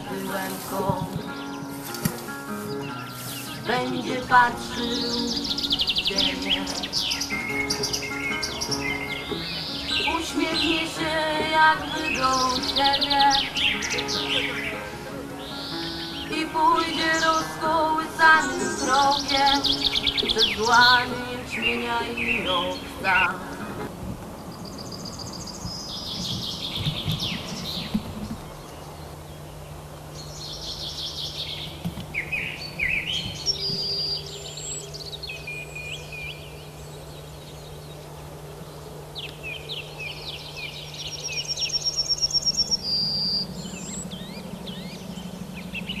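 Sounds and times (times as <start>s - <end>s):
songbirds singing: 0.0s - 46.0s
low hum: 31.6s - 46.0s.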